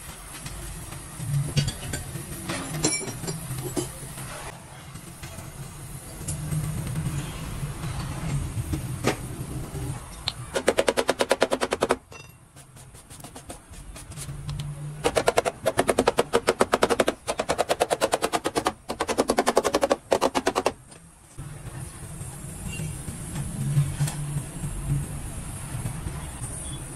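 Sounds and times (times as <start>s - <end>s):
hammer tapping on sheet metal: 10.6s - 14.2s, 15.0s - 20.8s.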